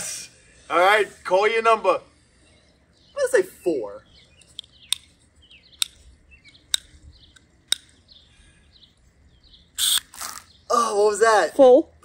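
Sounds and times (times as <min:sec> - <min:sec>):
faint birds chirping: 0:00.0 - 0:12.0
hose nozzle clicking: 0:05.8 - 0:07.9.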